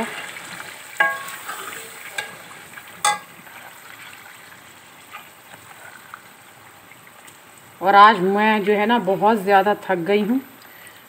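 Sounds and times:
food sizzling in a pot: 0.0 - 11.0
steel ladle clinking on pot: 1.0 - 1.6, 3.0 - 3.4.

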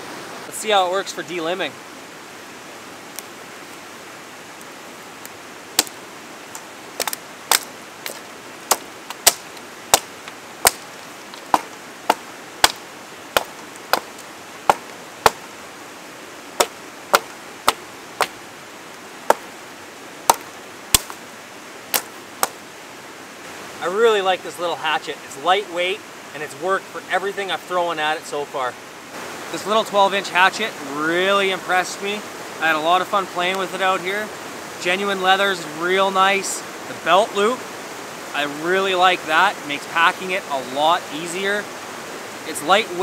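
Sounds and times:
hatchet chopping branches: 5.8 - 6.0, 6.6 - 15.5, 16.6 - 18.4, 19.3 - 19.5, 20.3 - 21.2, 21.9 - 22.6
sharp chops: 7.0 - 10.8.

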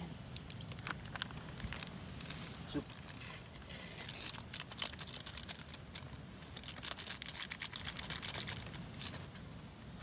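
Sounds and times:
plastic sachet crinkling: 0.4 - 9.3.

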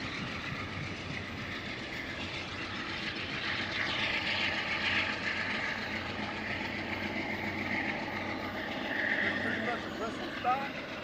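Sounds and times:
diesel locomotive engine: 0.0 - 11.0
train wheels on rails: 0.0 - 11.0.

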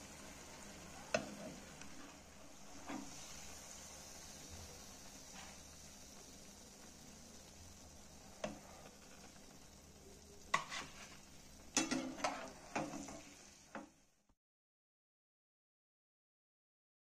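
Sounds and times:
patties sizzling in oil: 0.0 - 14.3
metal spatula scraping a pan: 1.1 - 3.8, 10.4 - 13.9.

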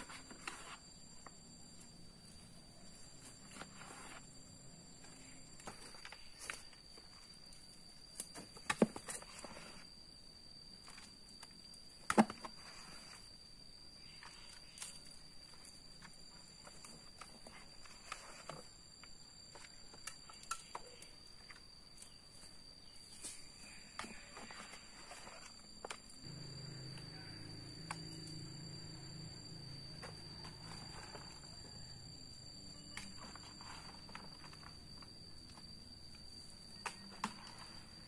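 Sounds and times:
high-pitched whine: 23.1 - 38.0.

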